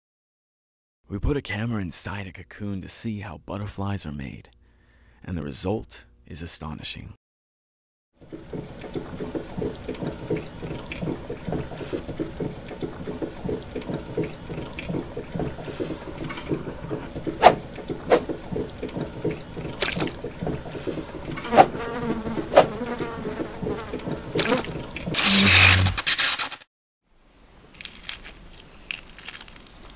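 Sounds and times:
flies buzzing: 0:21.4 - 0:25.8.

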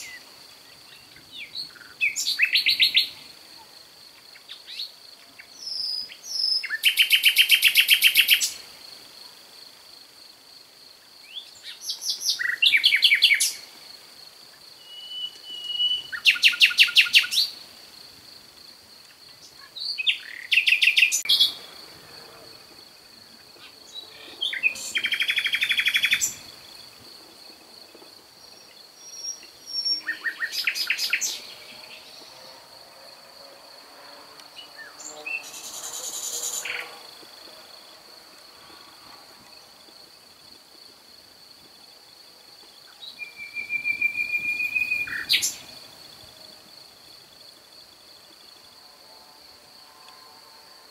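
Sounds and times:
songbird singing: 0:00.0 - 0:08.7, 0:11.0 - 0:13.8, 0:14.5 - 0:17.7, 0:18.9 - 0:32.5, 0:34.5 - 0:37.8, 0:42.6 - 0:46.6
high insect-like drone: 0:31.0 - 0:39.7.

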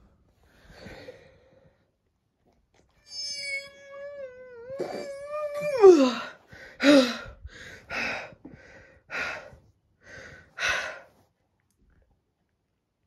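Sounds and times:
person gasping: 0:05.8 - 0:11.1.

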